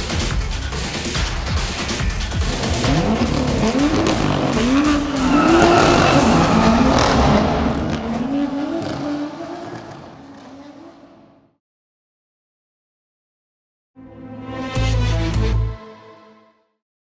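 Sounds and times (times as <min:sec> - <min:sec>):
car engine revving: 0:02.2 - 0:11.5.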